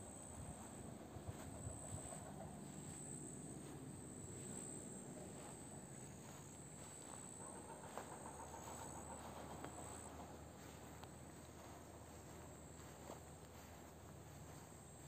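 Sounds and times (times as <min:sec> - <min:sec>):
low outdoor rumble: 0:00.0 - 0:15.0
small ticks: 0:06.2 - 0:14.7.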